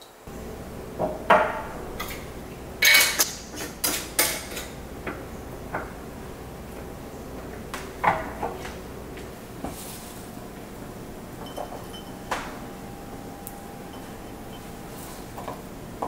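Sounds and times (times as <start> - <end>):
glass jar clinking on counter: 11.4 - 12.1.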